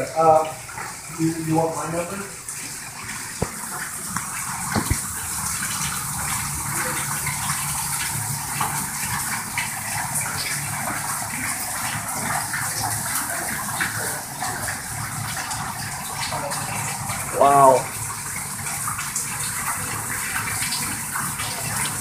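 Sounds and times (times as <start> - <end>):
water gushing and splashing: 0.0 - 22.0
sharp knocks: 4.7 - 5.0.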